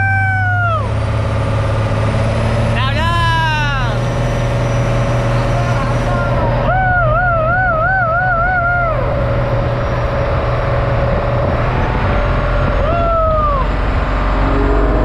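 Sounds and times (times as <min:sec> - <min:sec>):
engine running: 0:00.0 - 0:15.0
falling tone: 0:12.2 - 0:15.0
loud rushing noise: 0:13.7 - 0:15.0.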